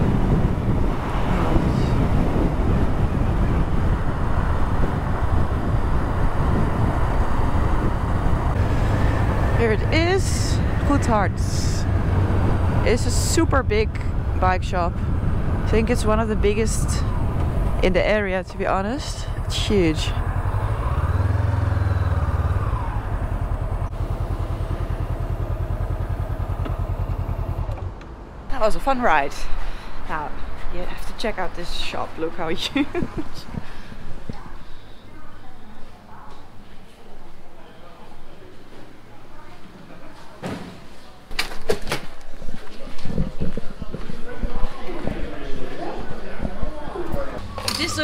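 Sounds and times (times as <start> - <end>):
wind rushing over microphone: 0.0 - 24.2, 26.8 - 35.4, 42.2 - 48.0
road noise: 0.0 - 48.0
motorcycle engine running: 19.2 - 28.0.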